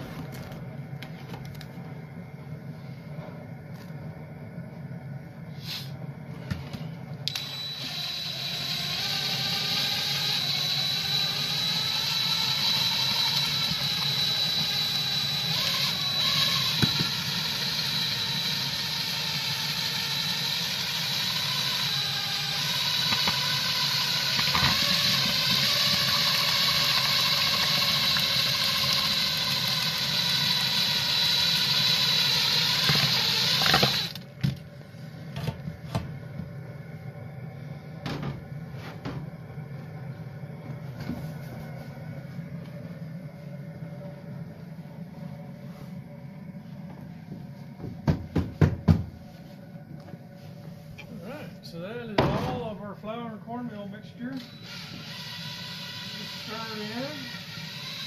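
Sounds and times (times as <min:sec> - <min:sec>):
cordless drill motor whine: 0:07.2 - 0:34.6, 0:54.2 - 0:58.0.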